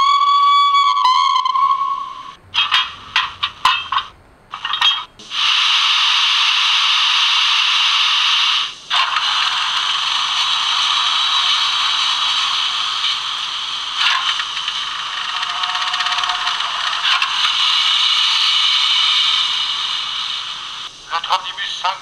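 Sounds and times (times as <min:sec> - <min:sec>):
metallic clank: 0:02.6 - 0:05.2
loud hiss of escaping steam: 0:05.2 - 0:21.9.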